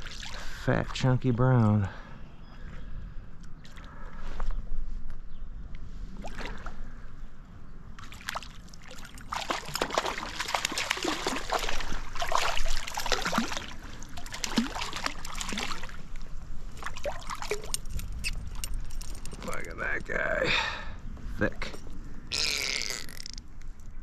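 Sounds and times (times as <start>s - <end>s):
fish splashing in water: 8.0s - 16.1s.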